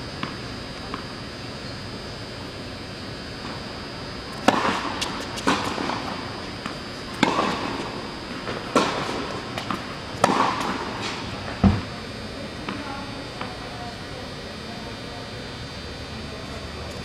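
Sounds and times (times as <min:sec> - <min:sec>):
tennis ball bouncing: 0:04.4 - 0:10.9
racket striking tennis ball: 0:04.4 - 0:11.2.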